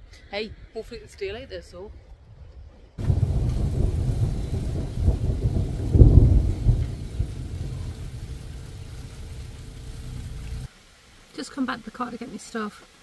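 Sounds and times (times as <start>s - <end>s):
wind buffeting microphone: 0.5s - 10.7s.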